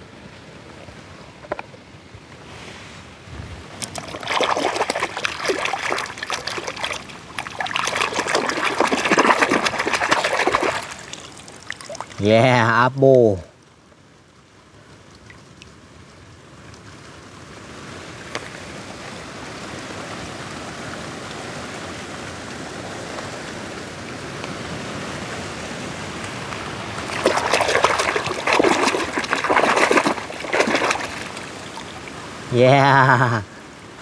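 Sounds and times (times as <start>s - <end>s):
running water rushing: 2.4s - 13.5s, 17.7s - 34.0s
toy car splashing through water: 3.8s - 12.1s, 27.0s - 31.6s.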